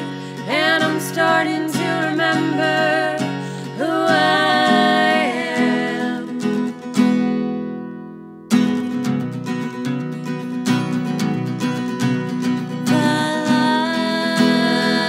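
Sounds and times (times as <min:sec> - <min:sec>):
strummed acoustic guitar: 0:00.0 - 0:15.0
women singing together: 0:00.2 - 0:06.7, 0:12.9 - 0:15.0.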